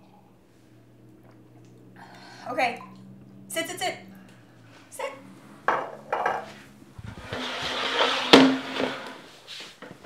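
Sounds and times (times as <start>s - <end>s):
wooden chair scraping floor: 5.4s - 10.0s
glassware knocking on counter: 5.7s - 6.5s.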